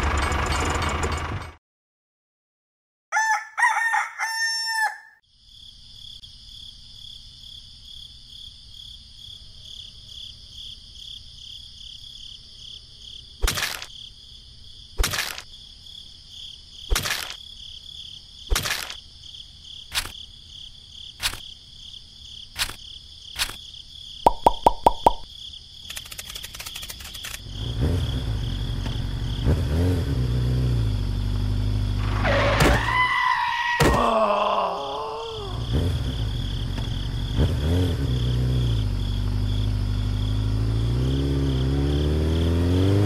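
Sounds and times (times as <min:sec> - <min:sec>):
rooster crowing: 0:03.1 - 0:05.2
insects chirring: 0:05.2 - 0:43.0
sharp taps: 0:24.3 - 0:25.2.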